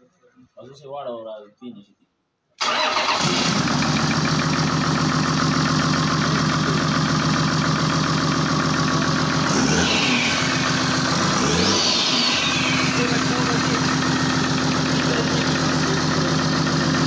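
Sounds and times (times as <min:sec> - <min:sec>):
diesel engine idling and revving: 0:02.6 - 0:17.0
turbo whine: 0:09.2 - 0:17.0.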